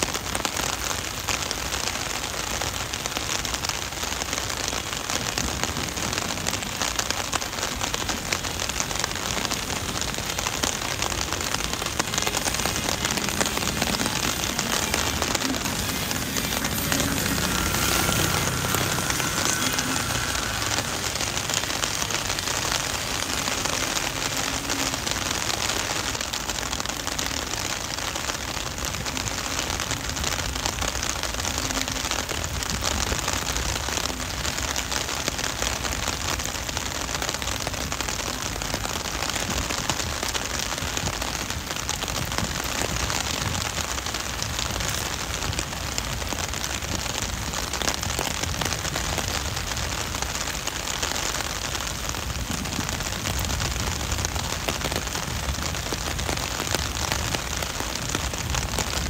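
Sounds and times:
heavy rain on pavement: 0:00.0 - 0:59.0.

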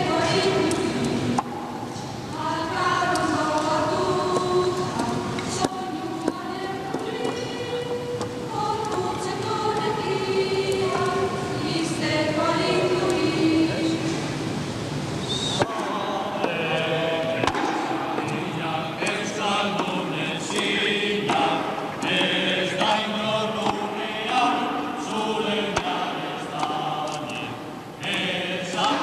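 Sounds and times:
group singing slow chant: 0:00.0 - 0:14.4, 0:15.3 - 0:29.0.

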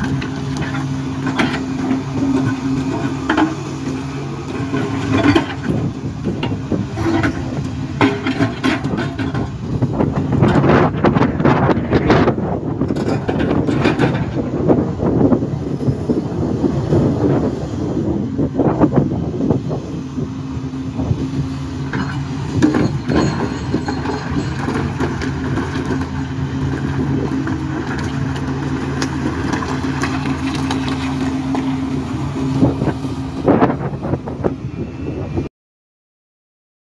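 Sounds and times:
excavator diesel engine humming: 0:00.0 - 0:35.5
rocks knocking and grinding: 0:21.9 - 0:31.8.

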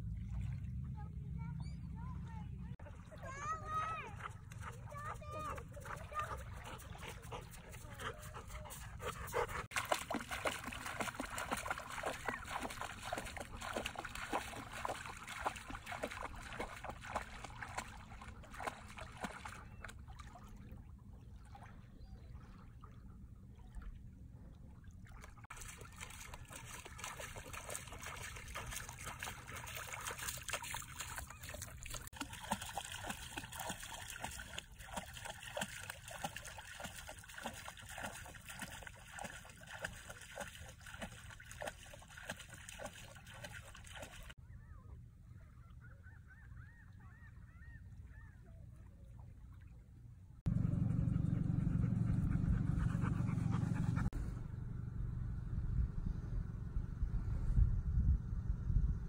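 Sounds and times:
dog splashing through water: 0:04.2 - 0:20.6, 0:25.0 - 0:44.4.

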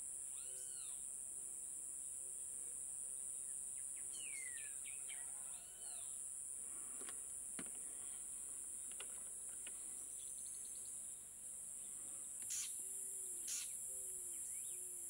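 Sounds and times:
shrill insect drone: 0:00.3 - 0:01.0, 0:12.5 - 0:14.9
sharp bird chirps: 0:12.5 - 0:12.8, 0:13.4 - 0:13.8.

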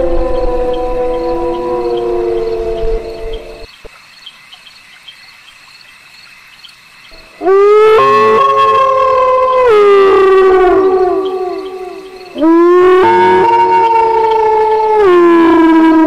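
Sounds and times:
wolves howling: 0:00.0 - 0:03.7, 0:07.2 - 0:16.0
faint cricket chirping: 0:00.0 - 0:15.4.

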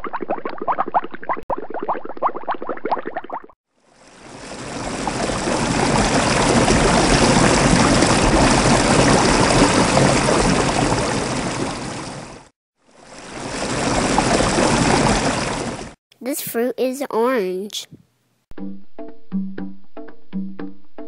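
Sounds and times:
rushing water: 0:03.8 - 0:16.0.

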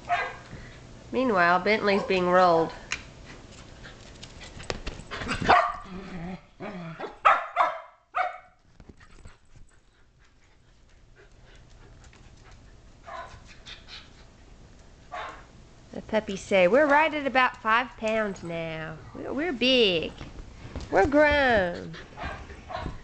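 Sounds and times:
dogs barking: 0:00.0 - 0:00.4, 0:05.4 - 0:05.9, 0:07.0 - 0:08.5, 0:13.0 - 0:13.4, 0:15.1 - 0:15.5, 0:22.2 - 0:23.0.

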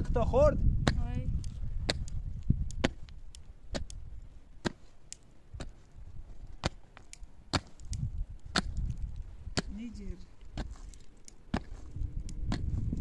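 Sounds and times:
clicks of loosened earth and stones: 0:00.8 - 0:13.0
pickaxe striking stony ground: 0:01.8 - 0:02.1, 0:07.5 - 0:09.8, 0:11.5 - 0:11.9, 0:12.5 - 0:13.0.

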